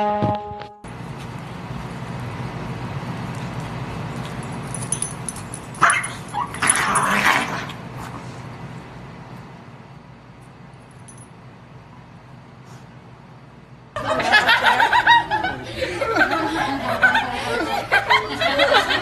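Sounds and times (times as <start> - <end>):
dogs play-fighting: 3.3 - 8.5.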